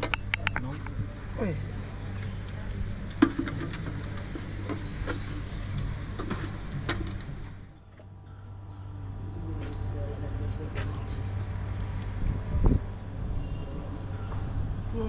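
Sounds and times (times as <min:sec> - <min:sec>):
brass lamps knocking and clinking: 0:00.0 - 0:01.0
steady low hum: 0:00.0 - 0:15.0.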